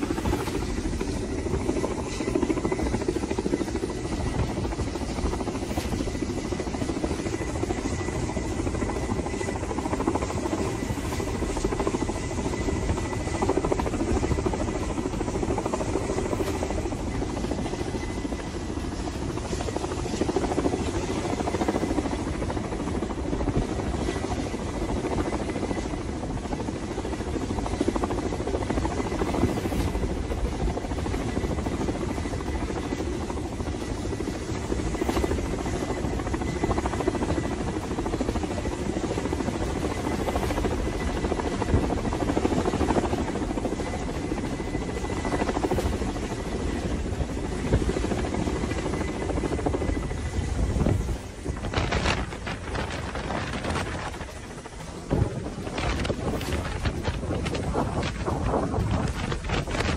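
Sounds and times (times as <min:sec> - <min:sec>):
helicopter hovering: 0:00.0 - 0:59.9
thin high turbine whine: 0:00.0 - 0:59.9.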